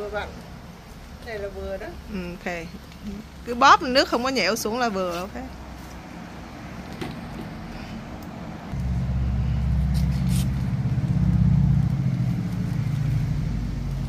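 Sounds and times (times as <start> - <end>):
vehicle engine running: 8.7 - 14.0.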